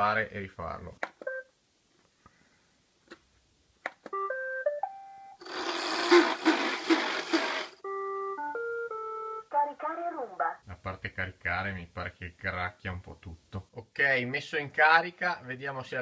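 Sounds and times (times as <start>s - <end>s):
harsh crackling from machine: 5.4s - 7.8s.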